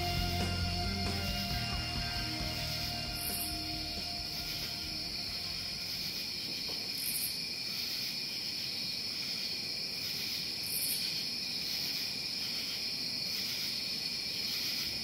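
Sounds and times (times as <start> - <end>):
high buzz: 0.0 - 6.8.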